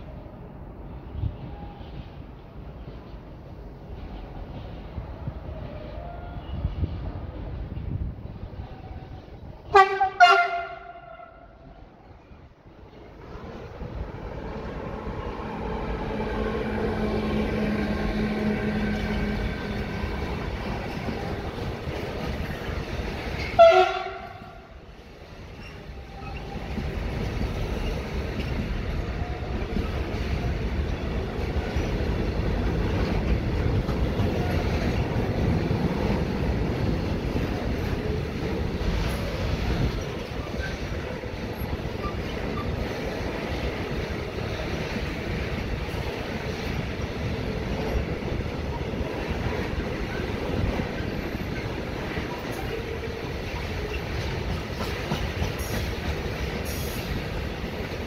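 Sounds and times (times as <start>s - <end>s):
train wheels rumbling on rail: 0.0s - 58.0s
locomotive horn blast: 9.7s - 11.6s, 23.6s - 24.7s.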